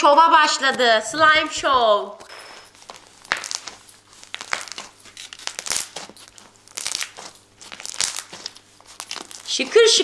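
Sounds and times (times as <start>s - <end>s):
crunchy slime squishing: 2.3s - 10.0s.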